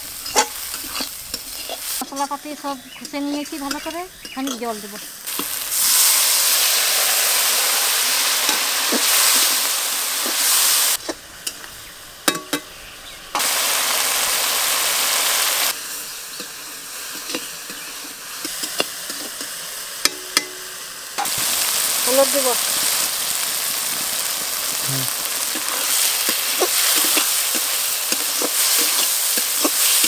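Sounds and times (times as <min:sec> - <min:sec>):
masala sizzling in pan: 0:00.0 - 0:30.0
spatula scraping pan: 0:25.5 - 0:30.0.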